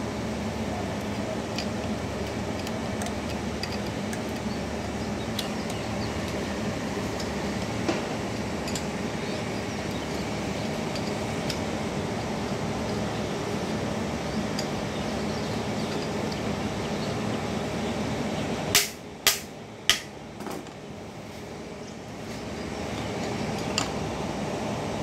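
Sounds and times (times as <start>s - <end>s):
steady background hum: 0.0s - 25.0s
metal parts clinking: 8.4s - 9.0s, 10.1s - 13.0s.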